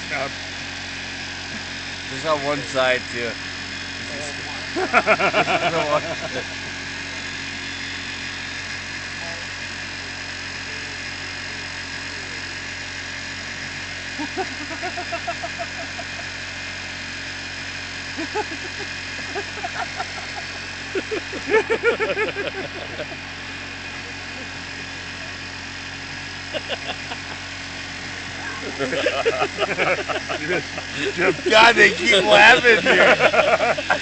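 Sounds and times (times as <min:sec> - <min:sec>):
electric beard clippers humming: 0:00.0 - 0:34.0
people laughing: 0:04.5 - 0:06.7, 0:14.2 - 0:16.4, 0:18.2 - 0:23.4, 0:26.4 - 0:27.5, 0:28.4 - 0:34.0.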